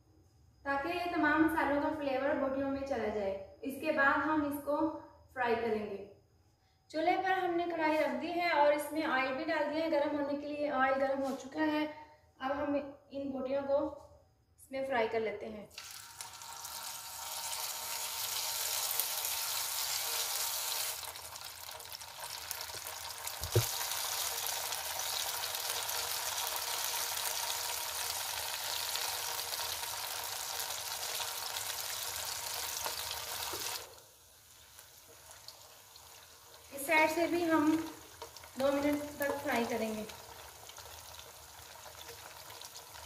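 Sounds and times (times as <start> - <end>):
meat deep-frying in oil: 15.7 - 43.0
knock: 23.4 - 23.7.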